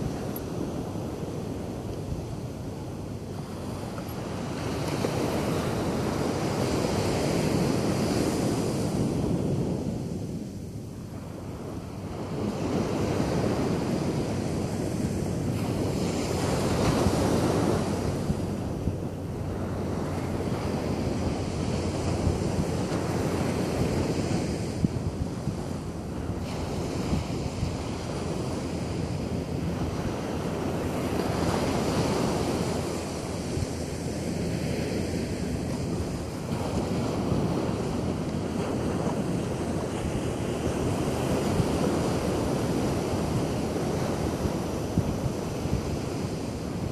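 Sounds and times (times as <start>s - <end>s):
waves breaking on beach: 0.0s - 46.9s
wind buffeting microphone: 0.0s - 46.9s.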